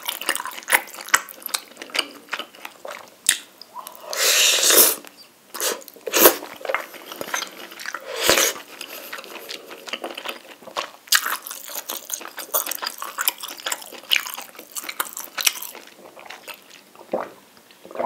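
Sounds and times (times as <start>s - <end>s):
wet chewing: 0.0s - 4.1s, 5.6s - 17.3s
loud slurp of noodles: 4.1s - 5.0s, 5.6s - 6.4s, 8.0s - 8.6s.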